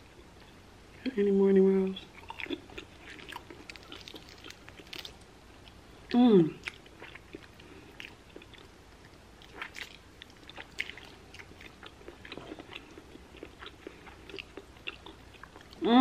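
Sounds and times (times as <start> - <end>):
chewing and biting meat: 9.4 - 15.8.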